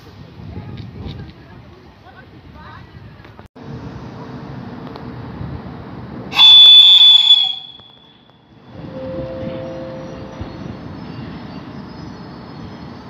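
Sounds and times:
locomotive whistle blast: 6.3 - 10.4.

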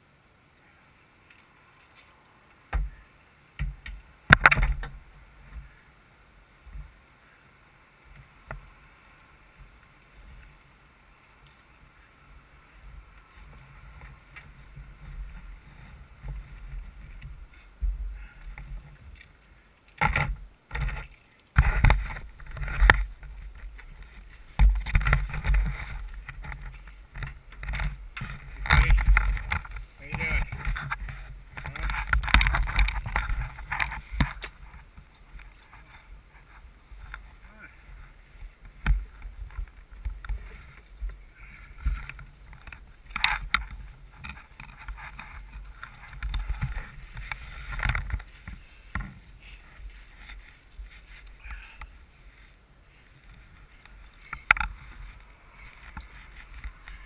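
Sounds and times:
helmet bumping and rustling: 20.0 - 37.3.

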